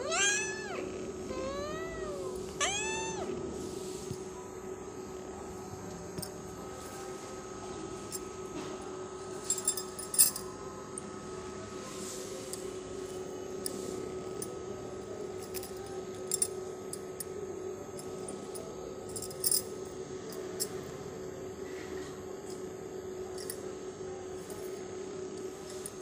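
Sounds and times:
steady low hum: 0.0s - 26.0s
glass bangles clinking: 9.4s - 10.5s, 18.0s - 19.7s.

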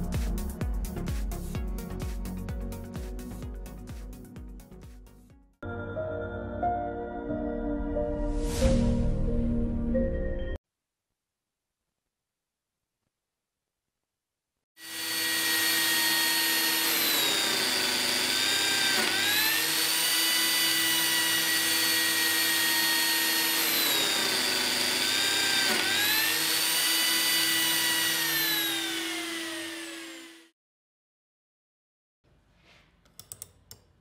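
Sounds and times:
biscuit joiner motor whining: 14.8s - 30.5s.

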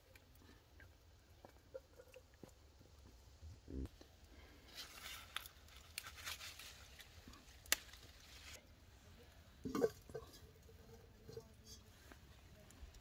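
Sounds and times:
leaves and stems rustling: 4.4s - 9.6s.

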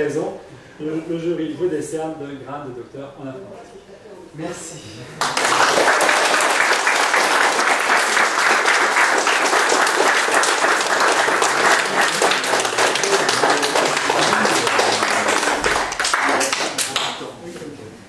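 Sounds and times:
crowd applauding: 5.2s - 17.2s.

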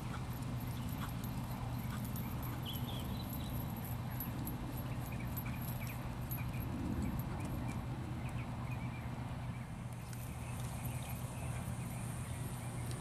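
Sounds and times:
hoofbeats on grass: 0.0s - 7.9s
steady low hum: 0.0s - 13.0s.

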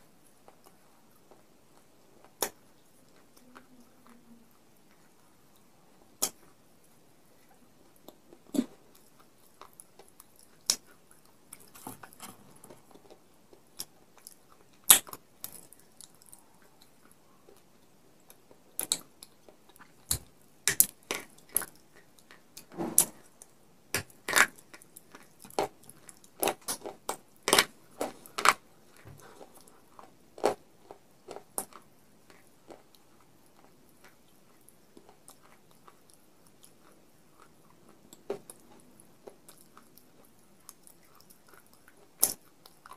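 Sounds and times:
baked clay crunching when chewed: 0.1s - 42.9s.

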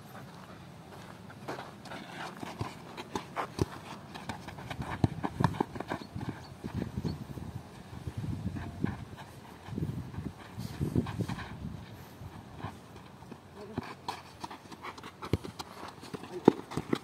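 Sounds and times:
footsteps running on dirt: 0.4s - 7.2s, 8.2s - 17.0s.

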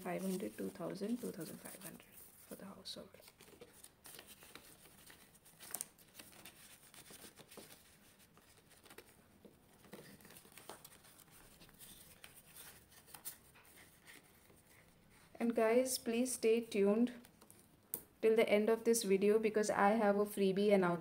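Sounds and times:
paper banknotes rustling: 0.0s - 15.2s.

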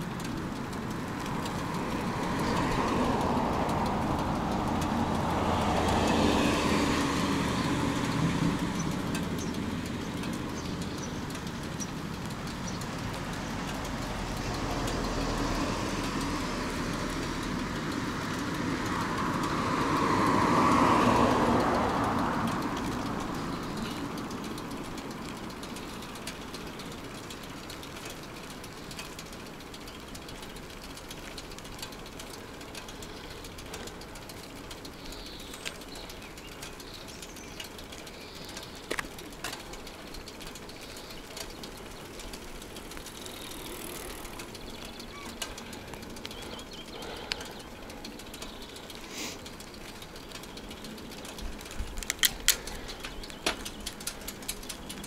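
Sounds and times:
bicycle clicks and rattles: 0.0s - 55.0s
car passing: 0.0s - 55.0s
wind and road noise: 0.0s - 55.0s
faint bird chirps: 44.8s - 45.5s.

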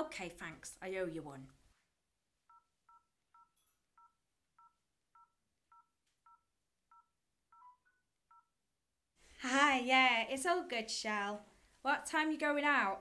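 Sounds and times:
telephone keypad beeps: 2.5s - 8.5s.

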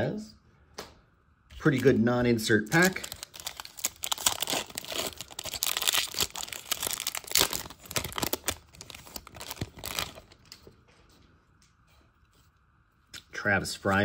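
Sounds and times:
wrapper crinkling and tearing: 1.6s - 10.7s.

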